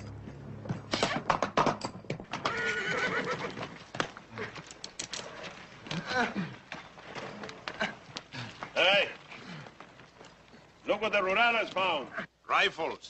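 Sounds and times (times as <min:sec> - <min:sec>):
clattering hoofbeats: 0:00.0 - 0:12.1
horses neighing: 0:02.3 - 0:12.4.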